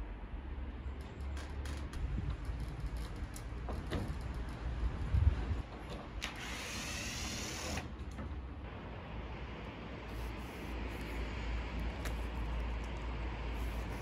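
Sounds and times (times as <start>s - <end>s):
wind rumble on microphone: 1.0s - 5.7s
cordless drill whirring: 6.2s - 7.9s.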